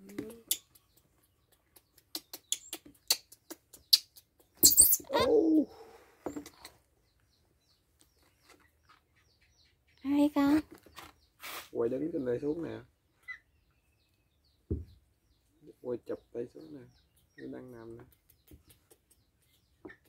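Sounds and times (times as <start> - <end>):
baby monkeys squeaking: 0.1 - 5.4, 13.2 - 13.6.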